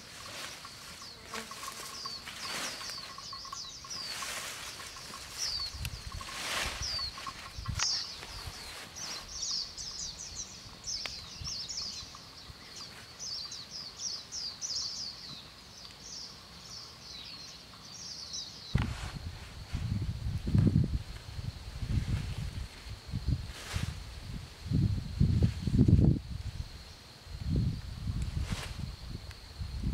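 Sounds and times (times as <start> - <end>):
leafy branches rustling: 0.0 - 11.5, 18.7 - 29.9
small birds chirping: 0.0 - 18.9.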